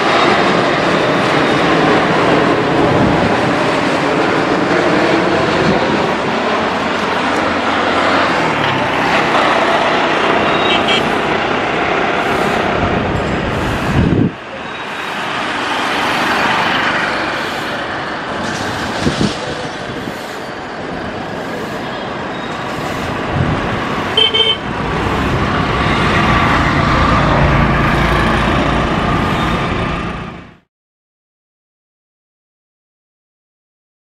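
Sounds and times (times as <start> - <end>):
jet engine roar: 0.0 - 30.7
road traffic noise: 0.0 - 30.7
car horn toot: 10.5 - 11.2, 24.2 - 24.7
deep rumble: 24.6 - 30.6.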